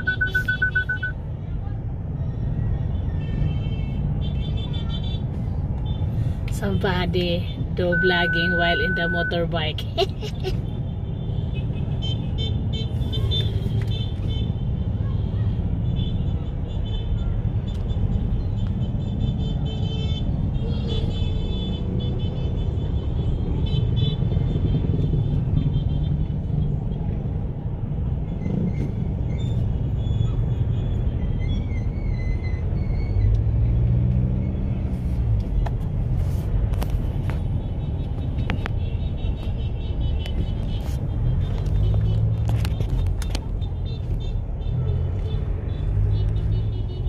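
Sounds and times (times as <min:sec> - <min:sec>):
road noise: 0:00.0 - 0:47.0
car engine rumble: 0:17.3 - 0:47.0.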